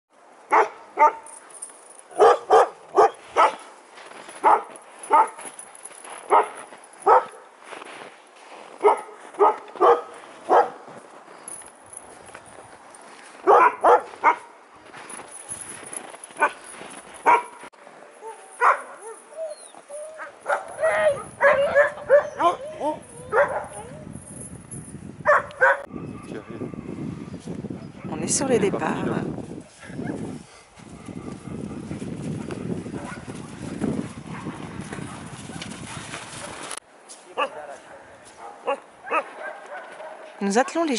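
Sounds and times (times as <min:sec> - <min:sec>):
dogs barking: 0:00.5 - 0:01.3, 0:02.1 - 0:03.7, 0:04.4 - 0:05.5, 0:06.2 - 0:07.5, 0:08.8 - 0:10.9, 0:13.4 - 0:14.6, 0:16.4 - 0:17.6, 0:18.2 - 0:24.0, 0:25.2 - 0:26.8, 0:32.9 - 0:33.3, 0:37.4 - 0:37.7, 0:38.4 - 0:40.4.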